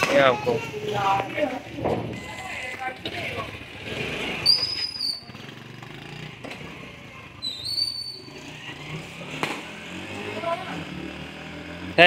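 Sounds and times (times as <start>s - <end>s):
street background noise: 0.0s - 12.0s
high-pitched whistles: 4.4s - 5.3s, 7.4s - 8.4s.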